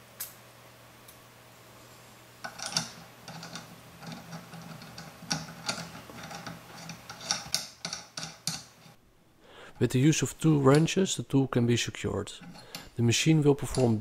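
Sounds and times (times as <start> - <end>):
small metallic clicks and rattles: 2.4 - 9.0.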